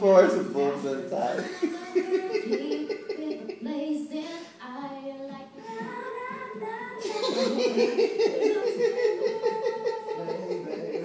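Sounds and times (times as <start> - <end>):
singing from a television: 0.0 - 11.0
man laughing hysterically: 1.4 - 3.6, 7.0 - 11.0.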